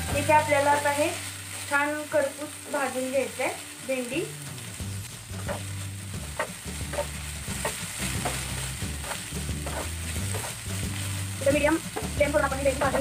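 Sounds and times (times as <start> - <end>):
okra frying in oil: 0.0 - 13.0
wooden spatula scraping pan: 5.4 - 13.0.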